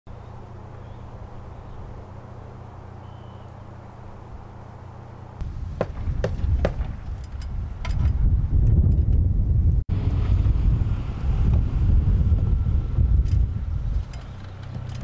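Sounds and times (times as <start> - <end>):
steady low hum: 0.1 - 15.0
wind buffeting microphone: 5.4 - 15.0
sharp knocks: 5.8 - 8.2.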